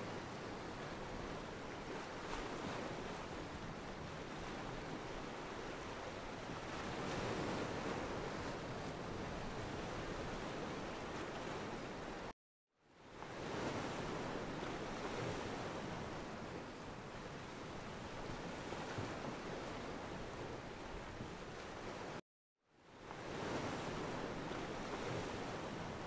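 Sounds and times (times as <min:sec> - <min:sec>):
ocean waves breaking on beach: 0:00.0 - 0:12.3, 0:13.0 - 0:22.2, 0:22.8 - 0:26.0.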